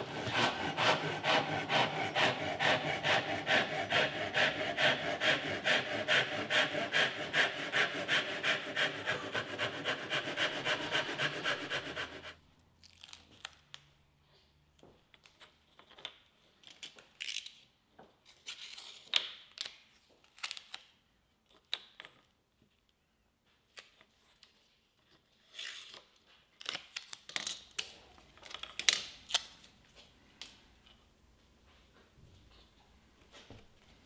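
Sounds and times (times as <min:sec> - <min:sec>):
hand tool scraping wood: 0:00.0 - 0:12.4.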